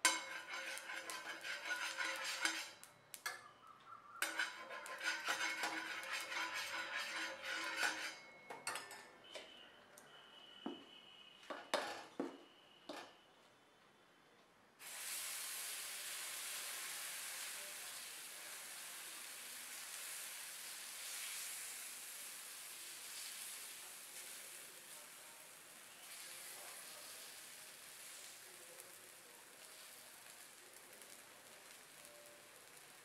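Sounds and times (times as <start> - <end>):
batter sizzling: 0.0 - 3.3, 4.2 - 8.3, 14.8 - 33.0
steel spatula scraping a griddle: 0.0 - 3.4, 4.2 - 9.1.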